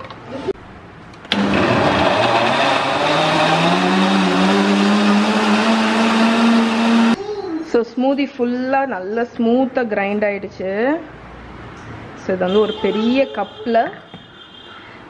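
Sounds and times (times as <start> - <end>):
blender running at high speed: 1.3 - 7.2.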